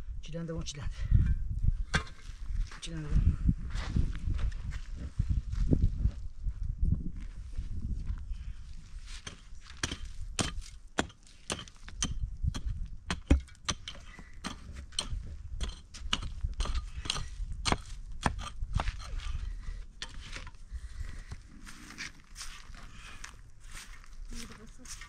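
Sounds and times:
hoe chopping into stony soil: 1.9 - 2.4, 9.2 - 20.5.

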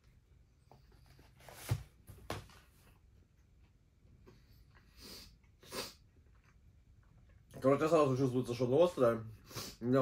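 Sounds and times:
man chewing food: 3.4 - 7.6.

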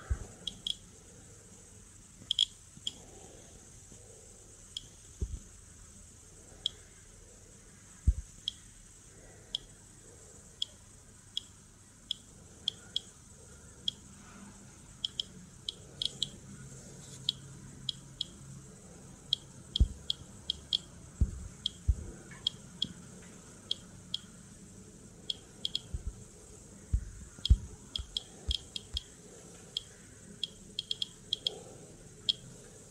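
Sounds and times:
geiger counter clicking: 0.4 - 0.8, 2.3 - 3.0, 9.5 - 9.7, 10.6 - 10.8, 11.4 - 13.1, 13.8 - 14.1, 15.0 - 16.4, 19.3 - 23.0, 23.7 - 24.3, 25.2 - 26.2, 27.0 - 31.6, 32.3 - 32.5
low thumps from handled case: 21.2 - 22.1.

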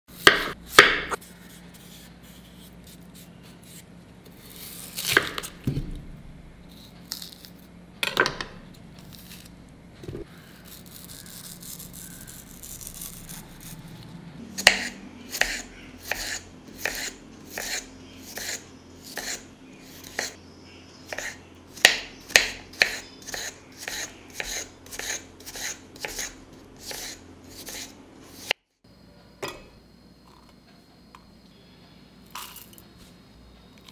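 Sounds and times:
knife chopping on cutting board: 0.2 - 1.2, 14.6 - 19.4, 21.1 - 27.8.

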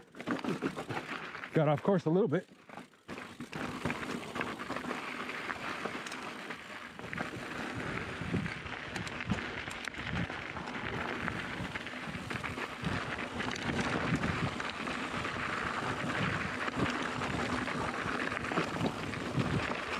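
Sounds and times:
bike tyres crunching on gravel: 0.0 - 19.9
bike clicks and knocks: 8.6 - 19.8.

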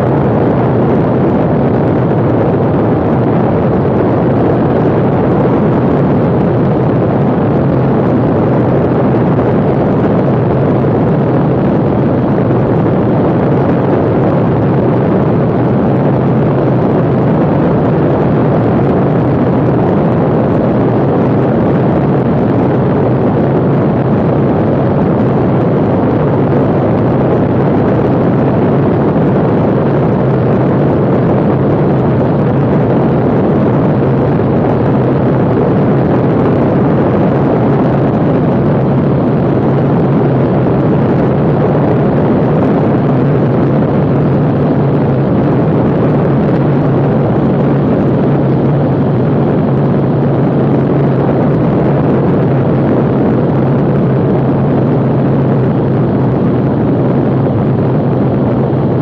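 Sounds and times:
propeller plane engine droning: 0.0 - 59.0
rushing air noise: 0.0 - 59.0.

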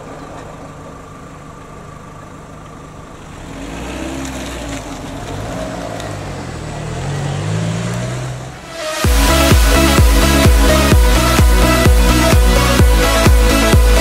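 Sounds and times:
car engine accelerating past: 3.2 - 9.0.

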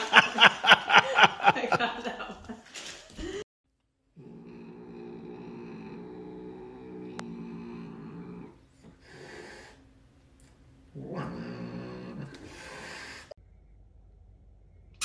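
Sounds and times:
cat growling: 4.2 - 9.8, 10.9 - 13.4.

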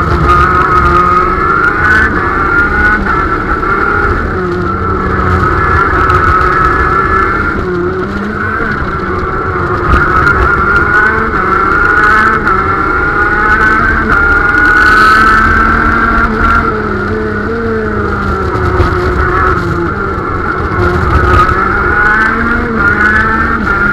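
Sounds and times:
kart engine accelerating: 0.0 - 23.9.

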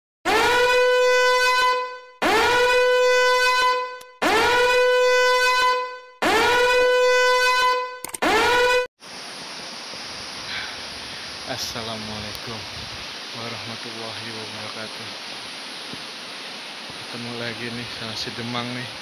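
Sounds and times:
long horn blasts: 0.3 - 8.9.

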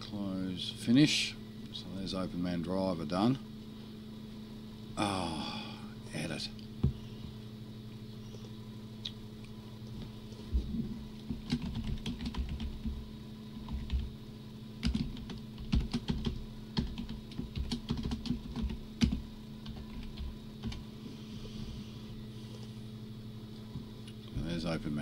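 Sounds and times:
computer keyboard typing: 11.3 - 13.0, 13.6 - 14.1, 14.8 - 20.8.

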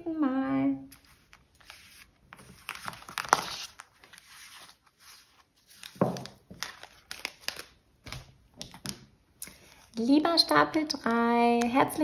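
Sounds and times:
cards handled on a table: 0.9 - 10.0.

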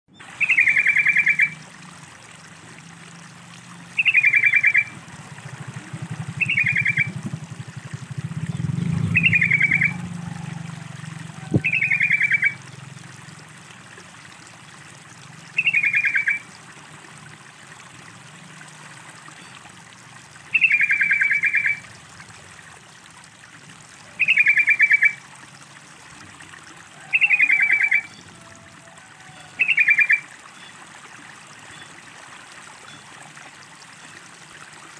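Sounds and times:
running water trickling: 0.1 - 34.9
bird chattering call: 0.4 - 1.6, 4.0 - 4.9, 6.4 - 7.1, 9.0 - 10.0, 11.4 - 12.6, 15.6 - 16.4, 20.6 - 21.8, 24.2 - 25.2, 27.1 - 28.2, 29.6 - 30.2.

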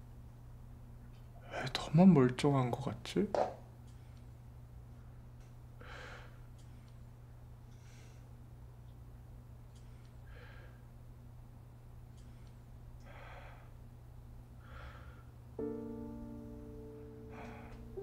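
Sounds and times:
low room hum: 0.0 - 18.0
man breathing: 5.8 - 7.0, 7.7 - 8.4, 9.8 - 10.9, 12.2 - 13.9, 14.6 - 15.4, 17.1 - 18.0
soft piano chord: 15.6 - 18.0.

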